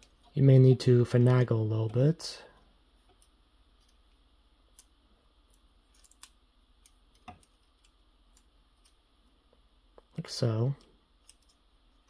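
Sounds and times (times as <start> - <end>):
plastic model parts clicking: 5.5 - 9.0, 11.2 - 11.6.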